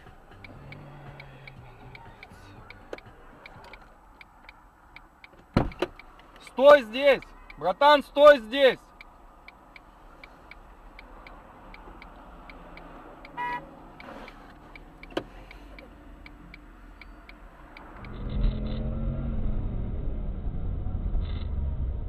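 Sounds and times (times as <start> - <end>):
car engine idling: 0.0 - 8.2
turn signal relay ticking: 0.0 - 18.2
moving car engine and road noise: 0.0 - 22.0.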